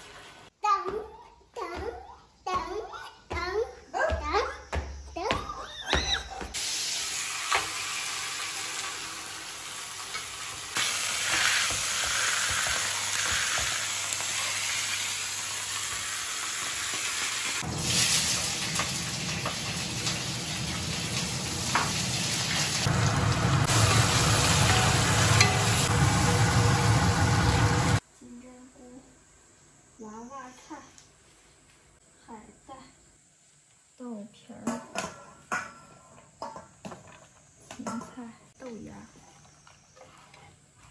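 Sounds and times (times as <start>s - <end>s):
vegetables sizzling in a wok: 0.0s - 0.5s, 6.6s - 28.0s
fish frying in hot oil: 6.6s - 28.0s.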